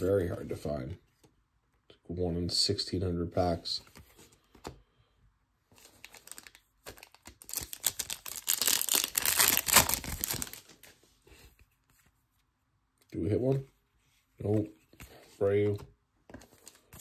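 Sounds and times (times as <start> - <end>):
wrapper crinkling and tearing: 5.8 - 10.9.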